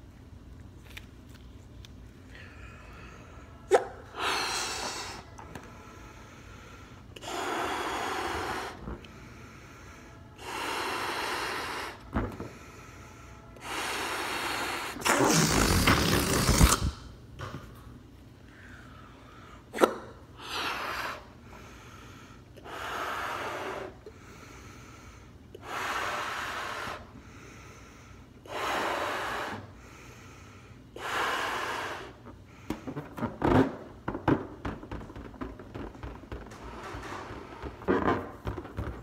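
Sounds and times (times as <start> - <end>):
breaths blowing up a balloon: 2.3 - 17.1, 19.7 - 39.0
balloon crackles and taps: 32.7 - 39.0.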